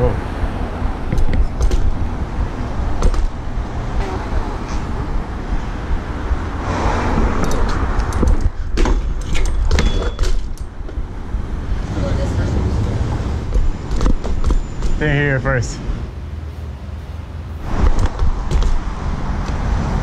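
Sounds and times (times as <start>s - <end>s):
wind on microphone: 0.3s - 9.2s
bike metallic clicks and rattles: 1.1s - 2.0s, 7.4s - 11.0s.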